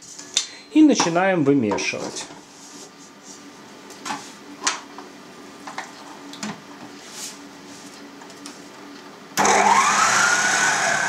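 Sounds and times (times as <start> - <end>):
stand mixer motor whine: 9.4 - 11.0.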